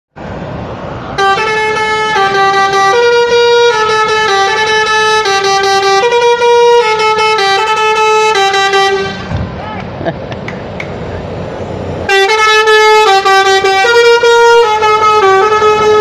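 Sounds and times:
bus engines rumbling: 0.1s - 16.0s
multi-tone bus horn tune: 1.1s - 9.4s, 12.0s - 16.0s.

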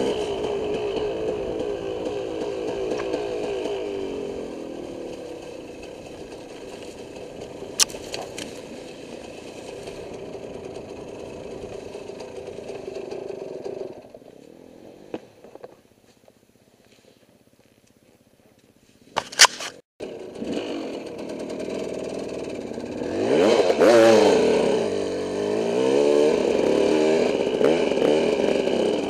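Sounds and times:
dirt bike engine: 0.0s - 17.1s, 18.6s - 29.0s
sharp crack: 5.4s - 9.8s, 19.1s - 19.8s.

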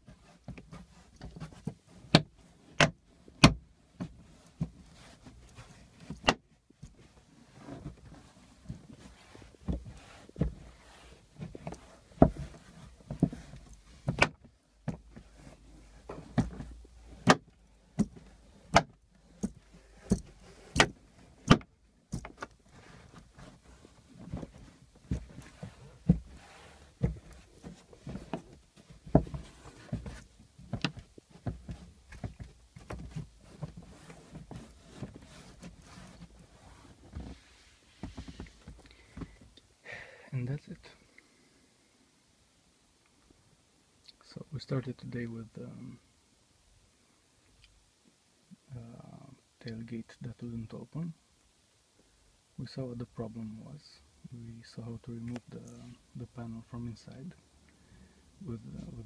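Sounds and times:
rubbing and handling of panel: 0.0s - 39.4s.

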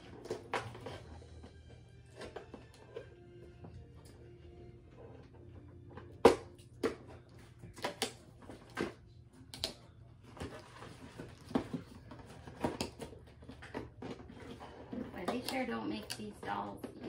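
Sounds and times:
packaging snapping and scraping: 0.0s - 3.2s, 5.1s - 17.0s.

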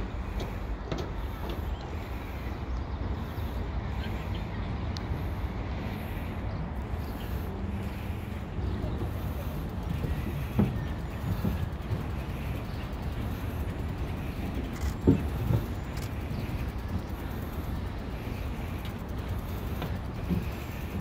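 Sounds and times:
bicycle tyres rumbling on boards: 7.0s - 21.0s.

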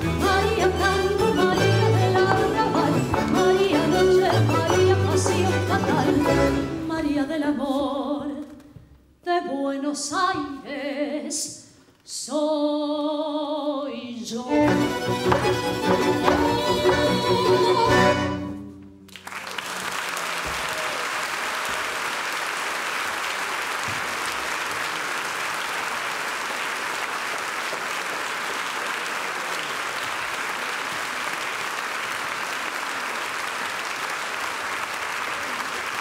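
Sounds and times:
audience applause: 19.1s - 36.0s.

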